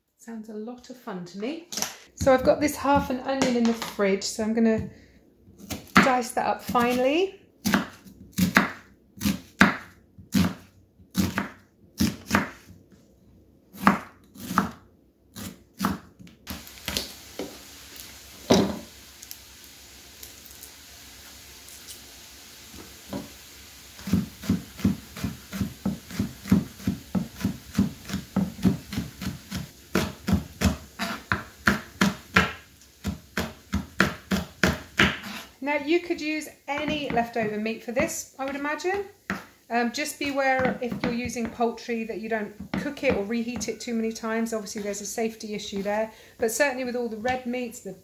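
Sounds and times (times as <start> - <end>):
knife chopping on wooden board: 7.6 - 12.7, 13.8 - 14.8, 15.4 - 17.5, 18.4 - 18.9, 24.0 - 35.5, 39.3 - 39.5, 40.6 - 41.6, 42.6 - 43.7.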